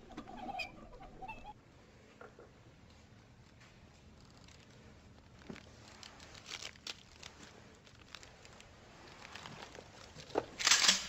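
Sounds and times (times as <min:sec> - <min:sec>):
books rustling: 0:04.5 - 0:10.8.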